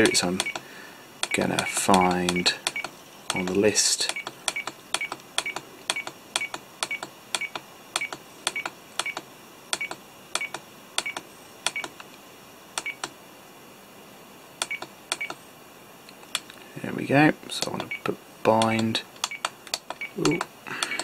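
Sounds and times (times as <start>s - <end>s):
button clicks: 0.0s - 0.6s, 14.6s - 15.4s, 18.6s - 21.0s.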